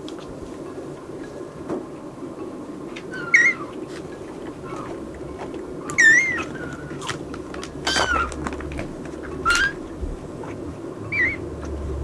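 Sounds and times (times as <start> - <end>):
kitten mewing: 5.8 - 7.2, 7.8 - 8.5, 9.4 - 9.8.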